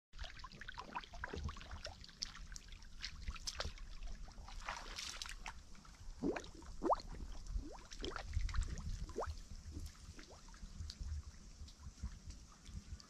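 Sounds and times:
muddy water sloshing and gurgling: 0.2 - 13.0
small water splashes: 0.2 - 13.0
bubbly bloops: 6.2 - 9.8.

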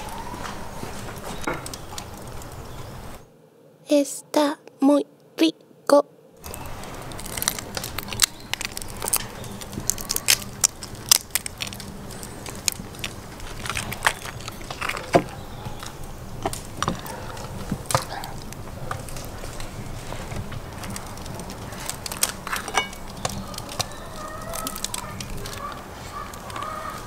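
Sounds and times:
crayfish shells cracking: 6.4 - 27.0.

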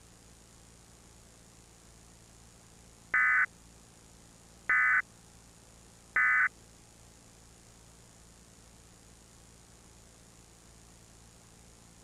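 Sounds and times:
faint videotape hiss: 0.0 - 12.0
buzzy electronic data tones: 3.2 - 3.5, 4.7 - 5.0, 6.2 - 6.5.

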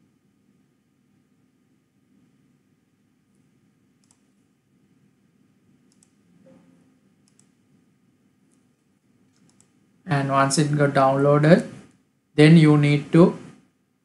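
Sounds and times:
computer mouse clicks: 3.3 - 4.4, 5.8 - 6.6, 7.2 - 7.6, 8.5 - 8.7, 9.3 - 9.8.

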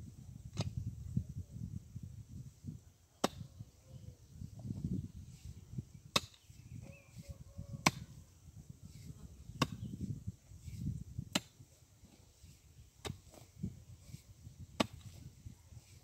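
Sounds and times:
pick striking stony soil: 0.5 - 0.8, 3.2 - 3.5, 6.1 - 6.6, 9.0 - 16.0.

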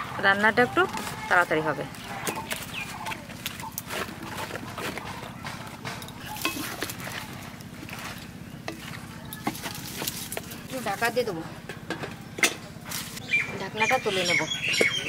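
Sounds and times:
wooden spatula stirring: 0.8 - 11.1.

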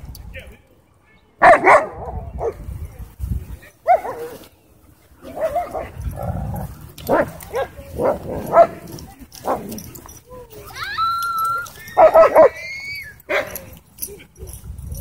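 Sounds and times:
dogs yipping whimpering and barking: 10.7 - 15.0.

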